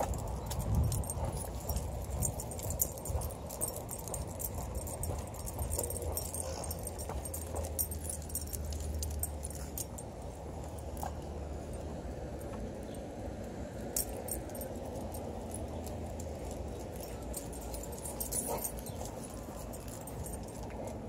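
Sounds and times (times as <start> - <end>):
low outdoor rumble: 0.0 - 21.0
metal leash hardware jingling: 0.0 - 21.0.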